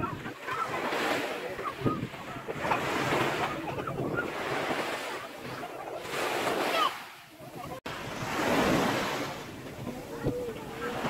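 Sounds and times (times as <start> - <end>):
wind buffeting microphone: 0.0 - 6.6
waves breaking on shore: 0.0 - 11.0.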